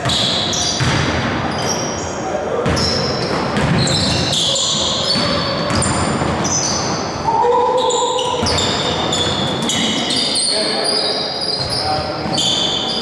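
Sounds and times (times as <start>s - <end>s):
basketball bouncing: 0.0s - 1.8s, 2.6s - 7.0s, 8.4s - 9.6s
sneakers squeaking on gym floor: 0.0s - 13.0s.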